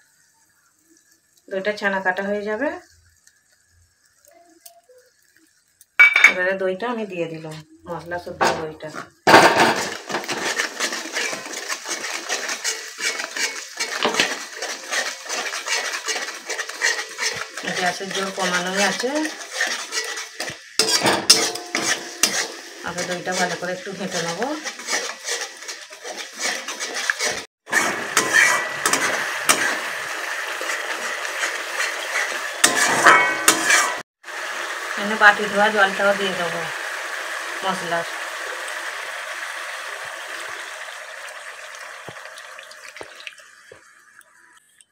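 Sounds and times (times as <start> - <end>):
sauce sizzling in oil: 0.0 - 44.9
metal spatula scraping a metal pan: 9.3 - 29.9, 30.5 - 34.0.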